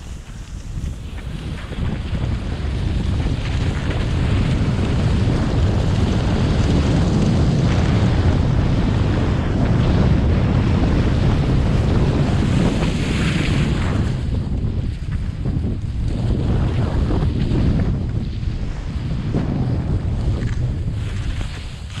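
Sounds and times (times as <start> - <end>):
sharp ski scrape: 0.0 - 2.2, 12.4 - 14.2, 19.6 - 22.0
skis sliding on snow: 0.0 - 22.0
wind rumbling on microphone: 0.0 - 22.0.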